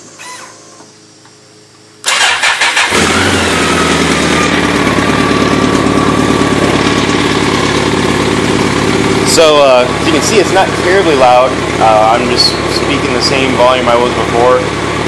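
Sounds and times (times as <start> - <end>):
motorcycle starter cranking: 2.0 - 9.4
motorcycle engine idling: 2.1 - 15.0.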